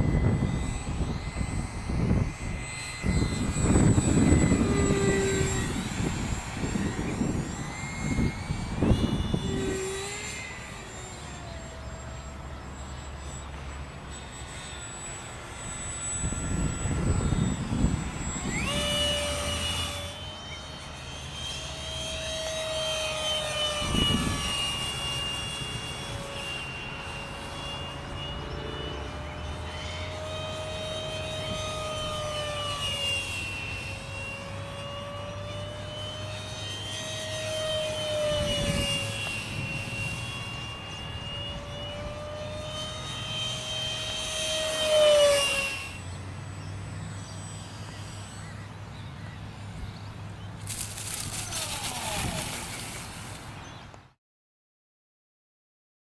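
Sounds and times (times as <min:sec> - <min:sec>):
wind rumbling on microphone: 0:00.0 - 0:10.5, 0:15.7 - 0:20.1, 0:23.6 - 0:24.8, 0:38.2 - 0:41.8, 0:50.6 - 0:53.9
electric ducted fan whining: 0:00.0 - 0:54.2.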